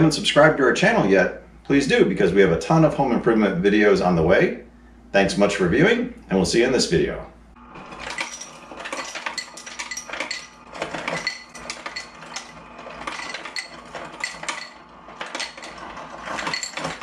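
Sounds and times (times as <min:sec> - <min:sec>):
ice clattering into a cup: 0:07.8 - 0:17.0.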